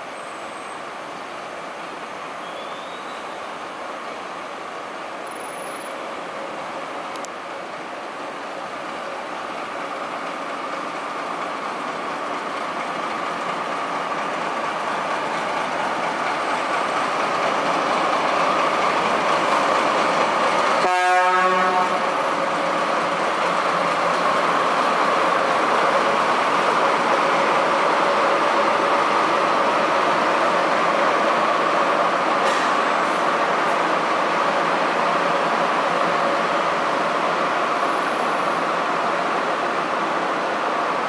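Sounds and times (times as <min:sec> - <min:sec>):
diesel locomotives passing: 0:00.0 - 0:41.0
locomotive horn toot: 0:20.8 - 0:22.1.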